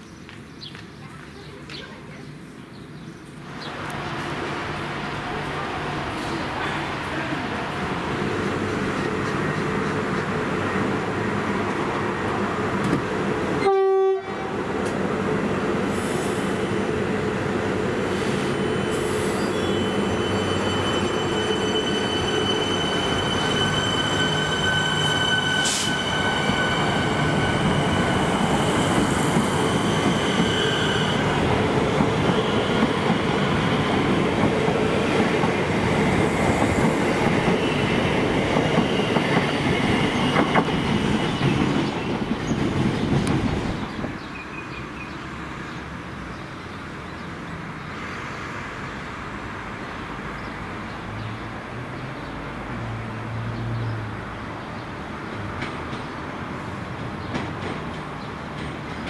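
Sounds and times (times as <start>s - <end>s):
train horn blast: 13.6s - 14.6s
train wheels rumbling: 14.5s - 44.4s, 55.3s - 59.0s.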